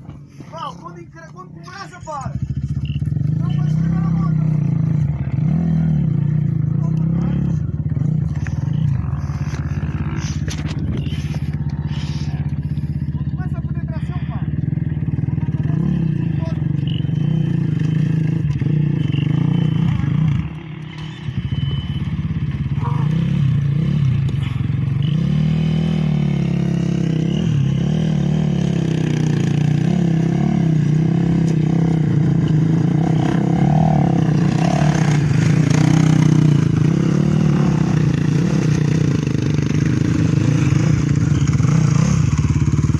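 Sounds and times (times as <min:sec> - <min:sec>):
motorcycle engine revving hard: 0:02.2 - 0:42.9.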